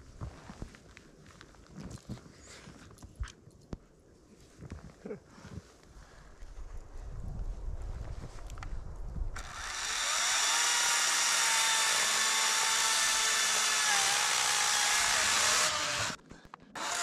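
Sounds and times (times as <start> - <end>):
chainsaw cutting log: 9.4 - 16.2, 16.8 - 17.0.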